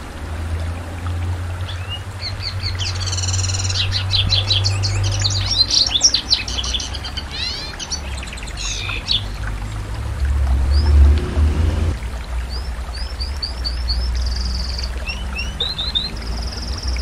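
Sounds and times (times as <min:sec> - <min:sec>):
canary singing: 0:02.4 - 0:09.3
steady low rumble: 0:09.2 - 0:12.4.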